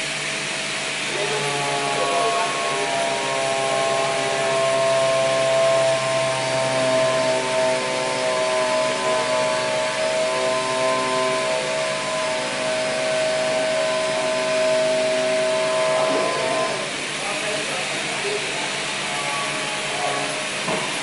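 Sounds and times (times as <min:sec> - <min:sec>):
machine motor whine and hiss: 0:00.0 - 0:21.0.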